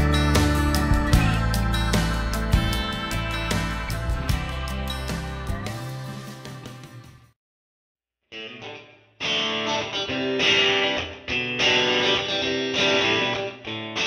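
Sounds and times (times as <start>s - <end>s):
guitar-led band music: 0.0s - 7.2s, 8.3s - 14.0s.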